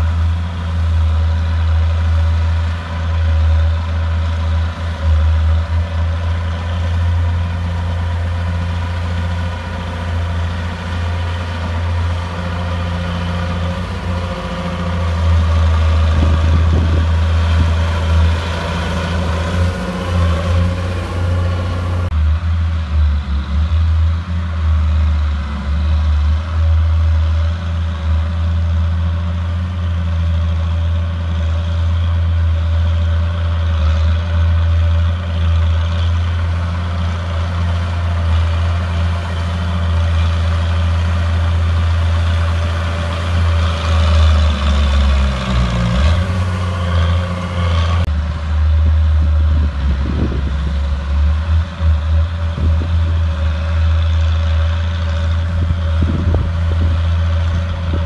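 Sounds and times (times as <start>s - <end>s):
bulldozer diesel engine running: 0.0s - 58.0s.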